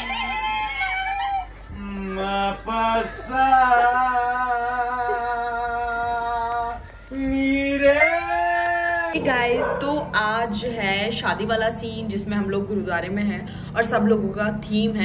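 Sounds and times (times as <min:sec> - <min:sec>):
man singing unaccompanied: 0:01.8 - 0:09.2.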